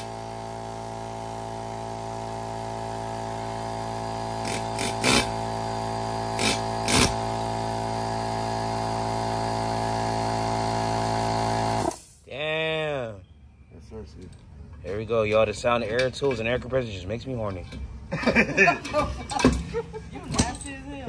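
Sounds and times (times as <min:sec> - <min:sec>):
air compressor motor running: 0:00.0 - 0:12.2
air chisel hammering: 0:04.4 - 0:05.4.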